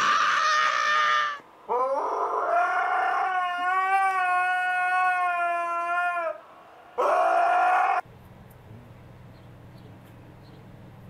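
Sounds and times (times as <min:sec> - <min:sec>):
dog howling: 0:07.0 - 0:08.0.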